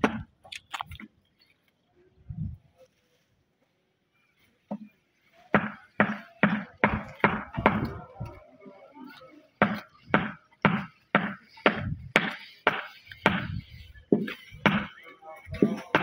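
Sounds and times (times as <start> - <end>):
heavy thudding blows: 9.6 - 15.0.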